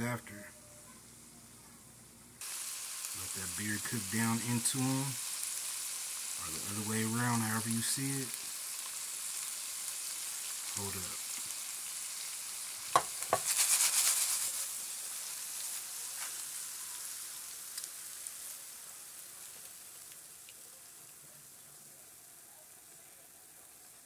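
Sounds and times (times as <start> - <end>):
peppers sizzling in oil: 0.0 - 24.0.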